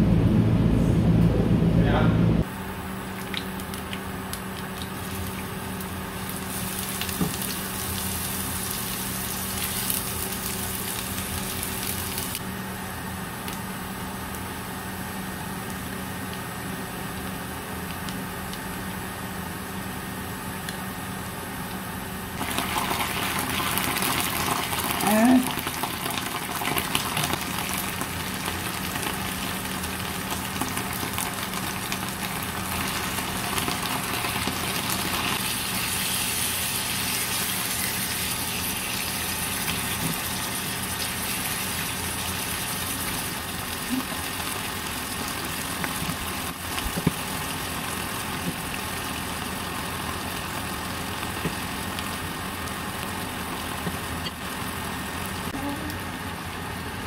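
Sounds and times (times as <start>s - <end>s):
onions and beef sizzling in a pan: 4.6s - 12.5s, 22.3s - 56.9s.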